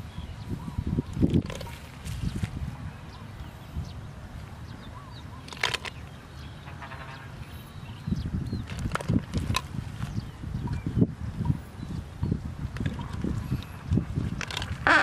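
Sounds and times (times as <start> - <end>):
birds chirping: 0.0 - 15.0
plants rustling: 1.2 - 2.8.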